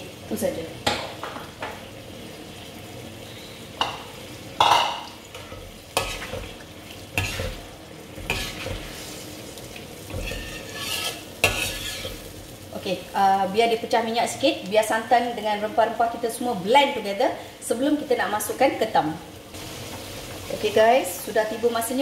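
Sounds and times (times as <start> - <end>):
gravy sizzling: 0.0 - 22.0
spoon scraping in a pot: 5.4 - 6.4, 7.2 - 7.6, 8.2 - 9.1, 10.1 - 12.3.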